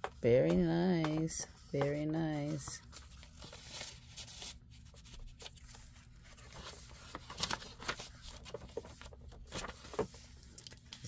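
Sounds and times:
paper rustling: 0.4 - 11.0
sharp paper crackles: 2.8 - 11.0.

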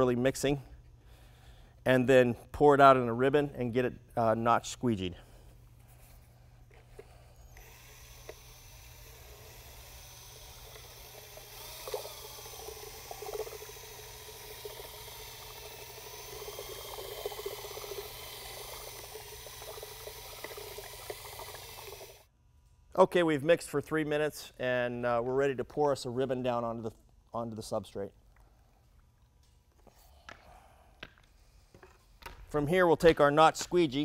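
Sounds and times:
drill motor whine: 7.0 - 22.3
liquid sloshing and swirling: 8.9 - 22.3.

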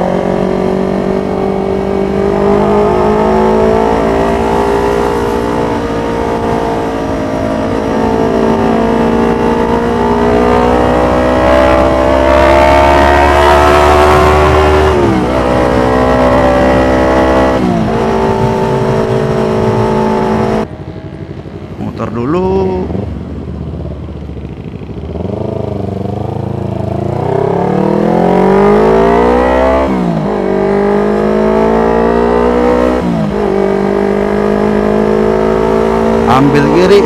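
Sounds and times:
wind noise: 0.0 - 21.9
motorcycle engine accelerating: 0.0 - 37.0.

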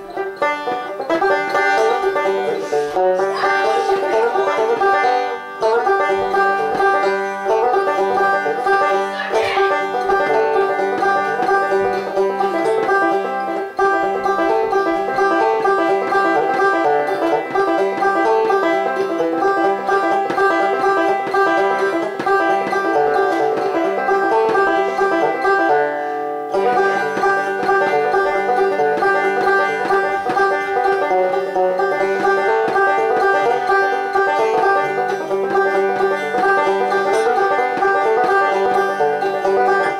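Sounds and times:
banjo picking: 0.0 - 39.9.

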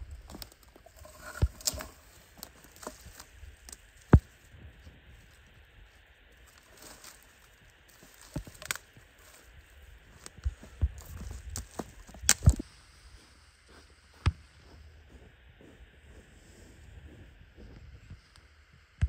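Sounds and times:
twigs cracking and snapping: 0.0 - 4.5, 6.4 - 9.4, 10.2 - 12.6.

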